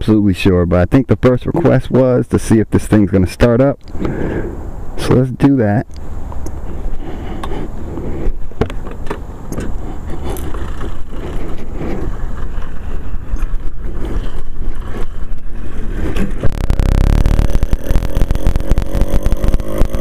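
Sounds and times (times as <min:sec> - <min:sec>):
bicycle rattles: 0:10.0 - 0:12.9
two-stroke engine running: 0:16.5 - 0:20.0.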